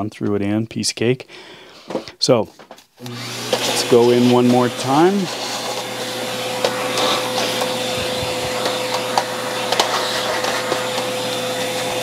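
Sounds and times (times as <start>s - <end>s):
vacuum cleaner whining: 3.0s - 12.0s.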